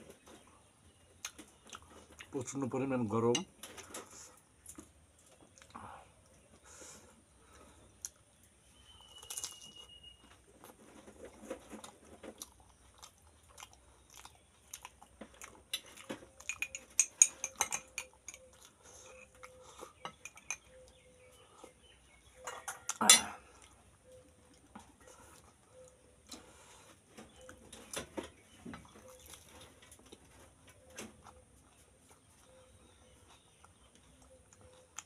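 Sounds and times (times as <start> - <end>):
crunchy food being chewed: 0.0 - 2.6, 3.6 - 35.0
plates and cutlery clinking: 16.4 - 18.5.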